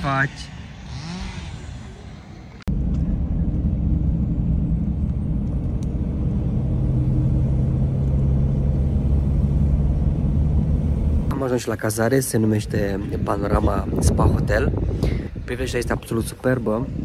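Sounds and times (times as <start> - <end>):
vehicle engine droning: 0.0 - 11.8.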